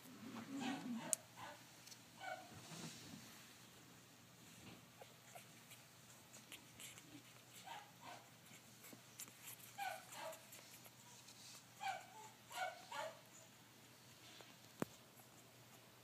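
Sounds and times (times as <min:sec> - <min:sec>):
puppies whimpering and squeaking: 0:04.9 - 0:13.5.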